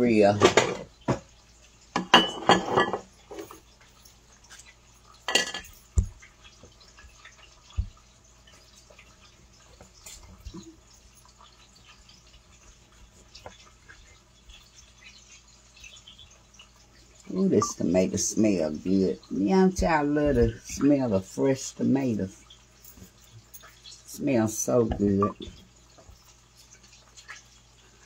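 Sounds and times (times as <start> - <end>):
kitchen utensils clattering: 0.1 - 1.2, 1.9 - 3.7, 5.2 - 5.9.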